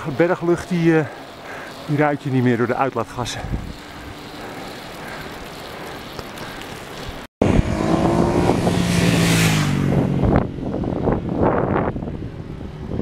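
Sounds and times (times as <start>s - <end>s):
wind rush on microphone: 3.2s - 4.6s, 7.0s - 13.0s
vehicle engine passing: 7.4s - 13.0s.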